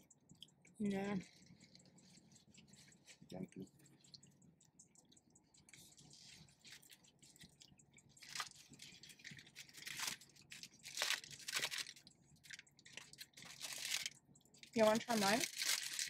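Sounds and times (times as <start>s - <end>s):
paper food wrappers crinkling: 5.8s - 16.0s.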